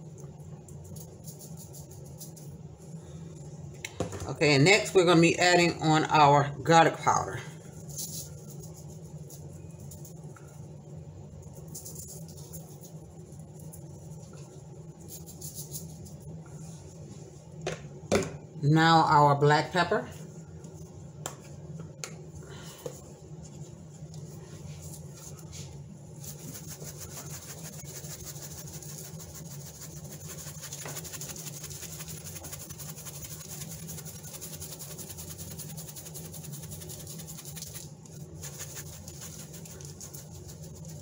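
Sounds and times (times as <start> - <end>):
steady low hum: 0.0 - 41.0
pepper shaker rattling: 0.4 - 2.9, 7.7 - 10.6, 11.4 - 16.4, 26.2 - 41.0.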